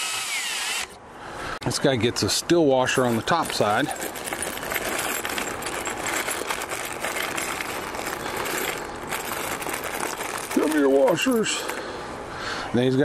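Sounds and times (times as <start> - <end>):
steel hardware rattling and clinking: 2.8 - 11.9.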